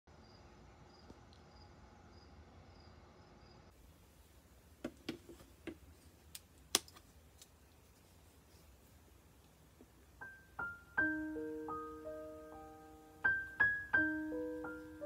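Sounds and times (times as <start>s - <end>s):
crickets chirping: 0.1s - 3.8s.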